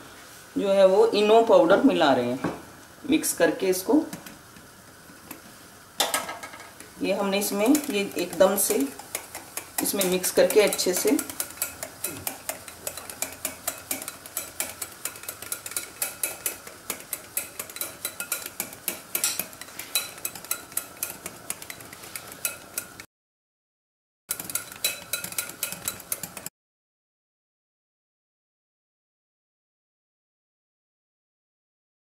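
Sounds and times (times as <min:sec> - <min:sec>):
whisk clicking against glass bowl: 0:07.5 - 0:23.1, 0:24.3 - 0:26.5.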